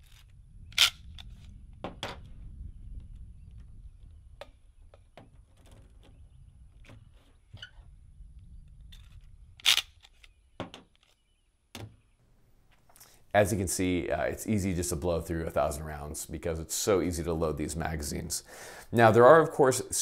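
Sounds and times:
cartridges and plastic clicking: 9.0s - 10.4s
magazine loader clacking: 9.6s - 10.4s.

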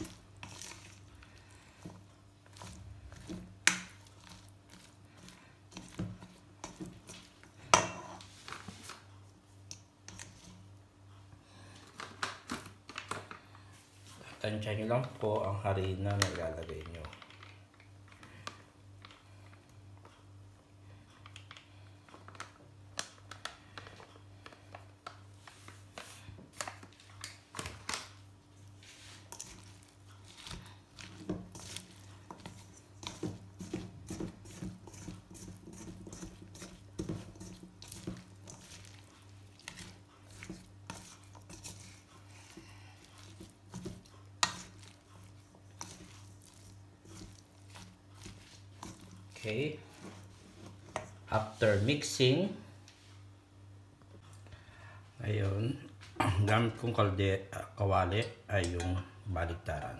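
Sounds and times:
vegetables rustling: 0.0s - 9.2s, 25.4s - 52.1s
spoon scraping metal bowl: 29.2s - 49.3s.

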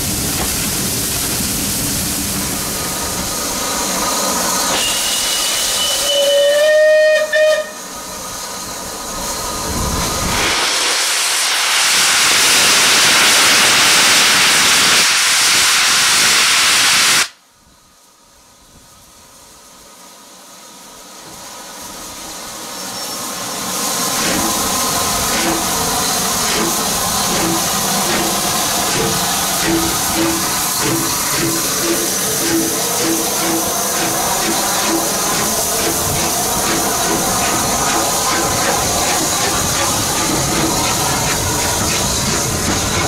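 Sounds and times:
steam hissing: 0.0s - 17.4s, 21.3s - 43.0s
steam locomotive whistle: 4.7s - 8.0s.

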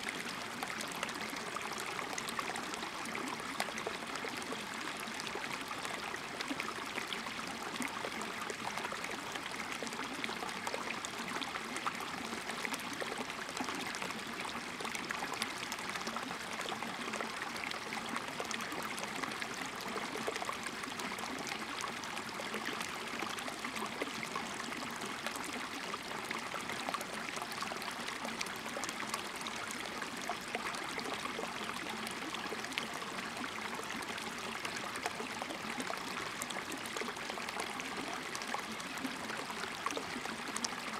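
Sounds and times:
stream trickling over stones: 0.0s - 40.9s.

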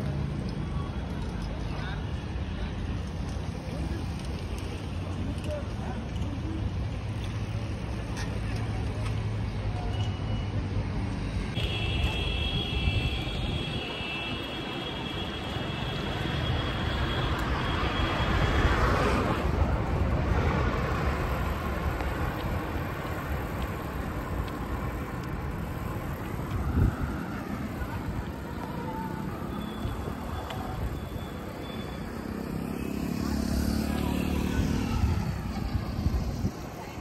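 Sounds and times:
road noise: 0.0s - 37.0s
wind rumbling on microphone: 18.4s - 31.2s, 34.5s - 37.0s.

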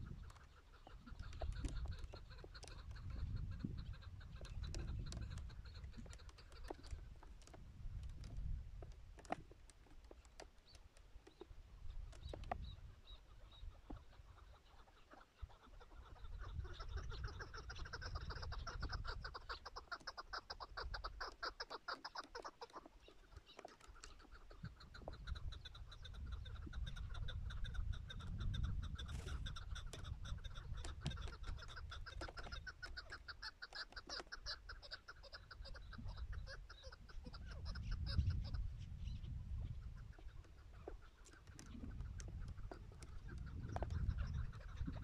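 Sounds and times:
wind rumbling on microphone: 0.0s - 10.4s, 11.2s - 14.8s, 15.4s - 21.3s, 23.3s - 33.4s, 34.3s - 45.0s
partridges clucking: 0.1s - 7.6s, 28.4s - 36.7s.

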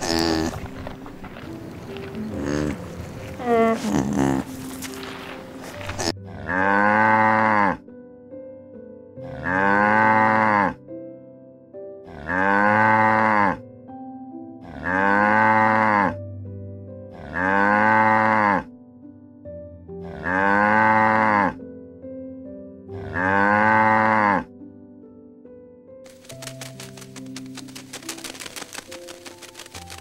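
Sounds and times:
soft music notes: 0.0s - 7.2s
cow mooing: 6.0s - 7.8s, 9.2s - 10.8s, 12.1s - 13.6s, 14.6s - 16.2s, 17.1s - 18.7s, 20.0s - 21.6s, 23.0s - 24.5s.

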